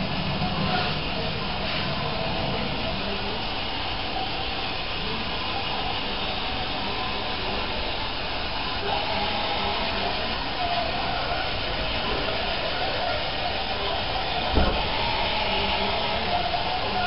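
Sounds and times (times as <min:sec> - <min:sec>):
electric motors whirring: 0:08.6 - 0:12.5, 0:13.4 - 0:17.0.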